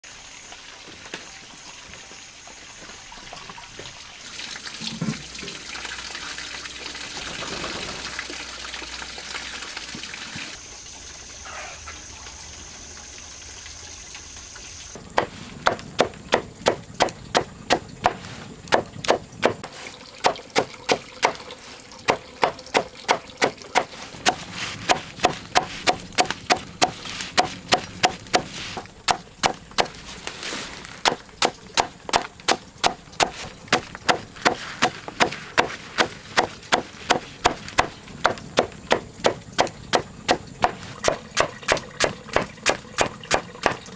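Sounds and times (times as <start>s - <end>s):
blade chopping wood: 15.1s - 21.4s, 22.1s - 30.0s, 31.0s - 43.9s.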